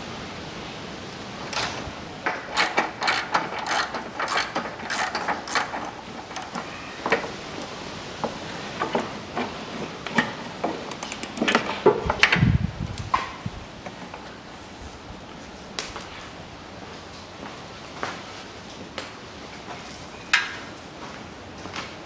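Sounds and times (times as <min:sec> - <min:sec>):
ratchet wrench clicking: 0:02.3 - 0:06.7, 0:10.8 - 0:11.6.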